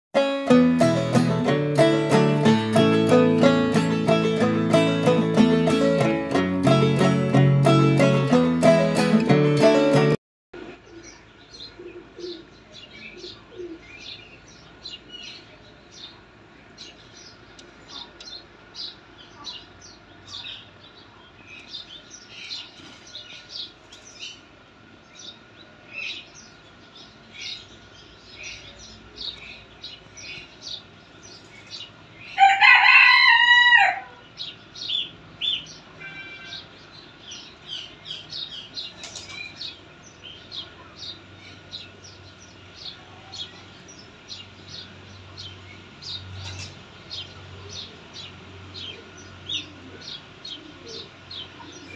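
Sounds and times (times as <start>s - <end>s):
loud drawn-out fowl call: 32.4s - 34.2s, 36.0s - 36.7s.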